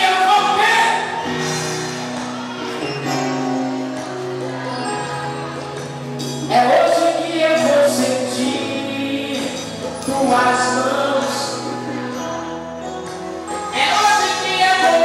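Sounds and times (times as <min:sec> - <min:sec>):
held keyboard chords: 0:00.0 - 0:15.0
person singing through a pa: 0:13.6 - 0:15.0.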